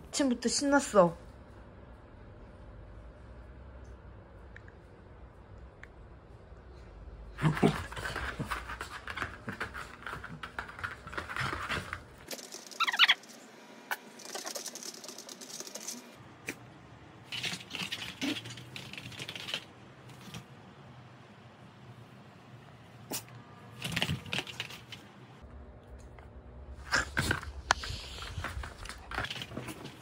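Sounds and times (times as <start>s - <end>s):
dog claws scrabbling on mat: 7.4s - 12.8s, 26.9s - 30.0s
dog high-pitched cry: 12.8s - 13.2s.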